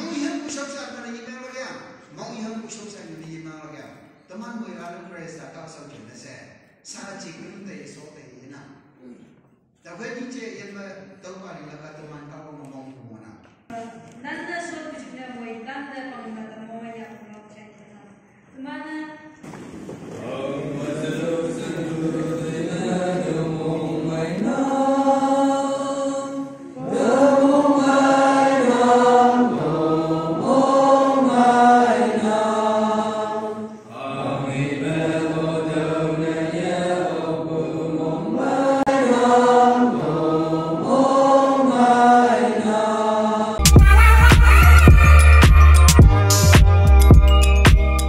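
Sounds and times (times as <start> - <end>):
congregation singing a hymn: 20.1 - 45.1
loud electronic music: 43.6 - 48.0.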